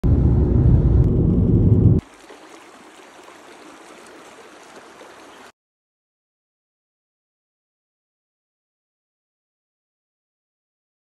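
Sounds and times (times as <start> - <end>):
car driving rumble: 0.0 - 2.0
shallow river over stones: 2.0 - 5.6.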